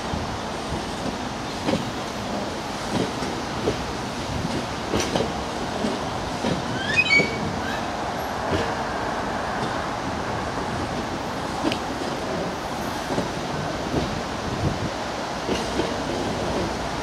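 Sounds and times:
train wheels rumbling over rail joints: 0.0 - 17.0
short high squeaks: 6.8 - 8.0.

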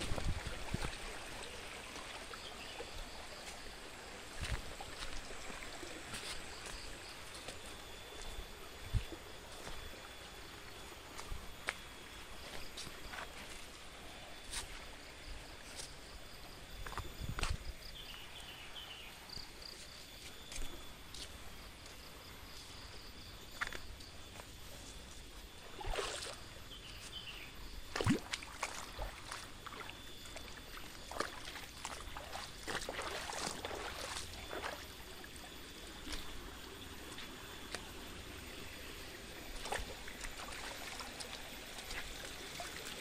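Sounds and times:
stream trickling over stones: 0.0 - 21.9, 23.6 - 43.0
footsteps on rocks and gravel: 4.4 - 5.4, 6.0 - 9.9, 39.5 - 42.4.

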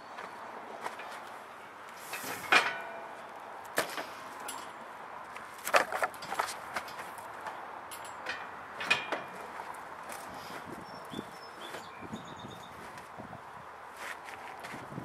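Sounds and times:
metal rack clanking on pickup bed: 2.0 - 4.8, 5.7 - 9.7.

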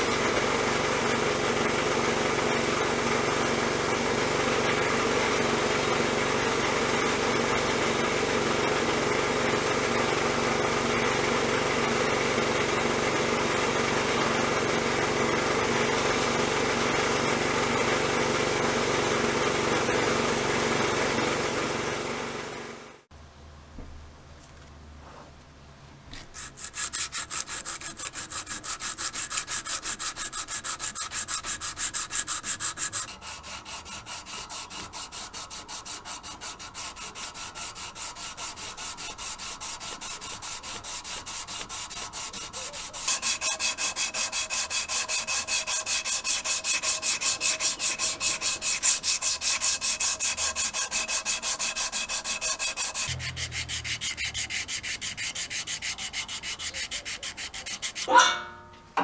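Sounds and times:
sandpaper rubbing on metal: 26.2 - 58.2.

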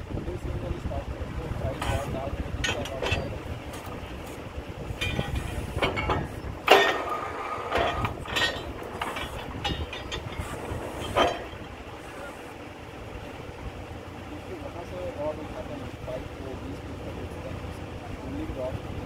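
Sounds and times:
drilling rig rumble: 0.0 - 19.0
metallic clanks: 1.8 - 3.9, 4.9 - 12.2.

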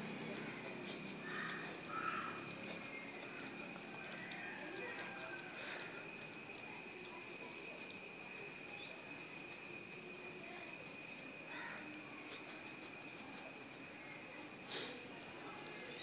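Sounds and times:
insects droning: 0.0 - 16.0.

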